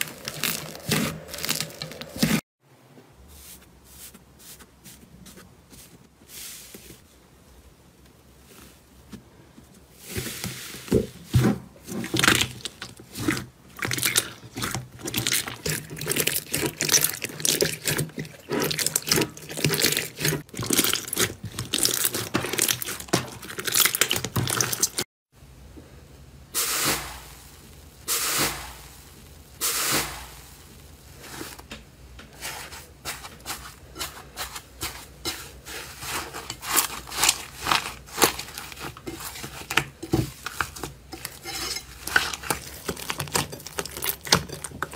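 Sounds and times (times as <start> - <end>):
slime crackling and squelching: 0.0 - 2.4, 11.8 - 25.1, 32.4 - 44.9.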